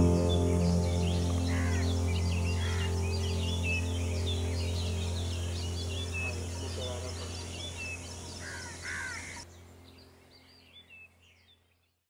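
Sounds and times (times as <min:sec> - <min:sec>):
harsh bird calls: 0:00.0 - 0:09.5
steady low hum: 0:00.0 - 0:09.9
birds chirping: 0:00.0 - 0:12.0.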